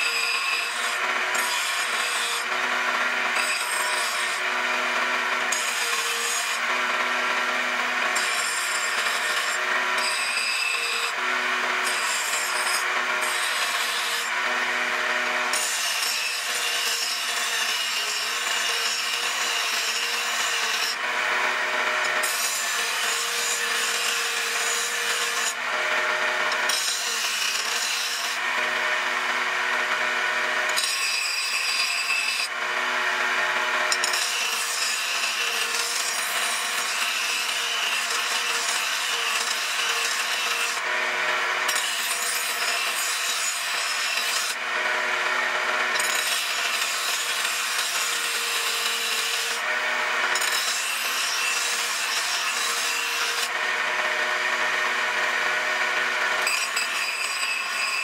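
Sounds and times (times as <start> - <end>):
grinder motor hum: 0.0 - 58.0
grinding wheel rasping on steel: 0.0 - 58.0.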